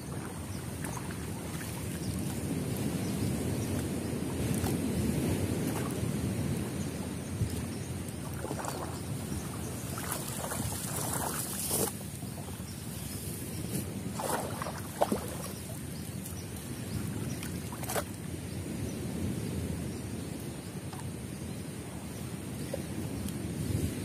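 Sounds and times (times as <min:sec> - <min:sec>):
water sloshing and splashing: 0:00.0 - 0:18.3.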